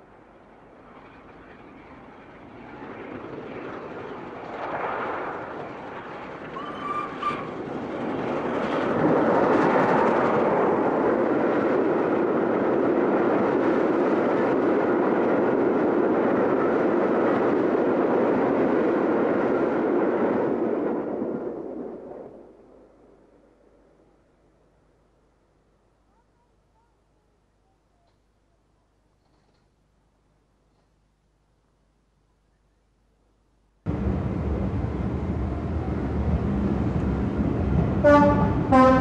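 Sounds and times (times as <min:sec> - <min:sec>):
train passing: 0:00.0 - 0:25.8, 0:33.9 - 0:39.0
steam locomotive whistle: 0:38.0 - 0:39.0.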